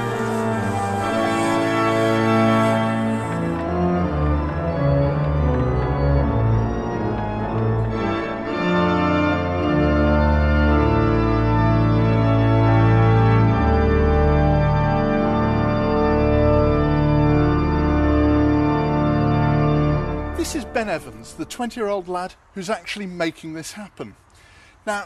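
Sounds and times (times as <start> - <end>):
organ chords: 0.0 - 25.0.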